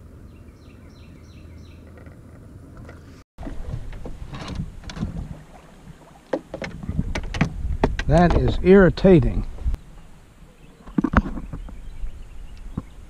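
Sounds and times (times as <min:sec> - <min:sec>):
gear knocking against canoe hull: 0:02.8 - 0:09.6
wind rumble on microphone: 0:06.6 - 0:09.9, 0:10.9 - 0:13.0.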